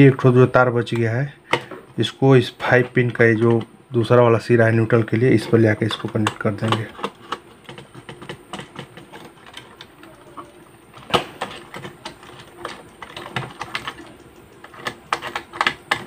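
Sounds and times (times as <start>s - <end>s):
wire clicking and scraping in terminal: 2.6s - 4.1s, 4.8s - 16.0s.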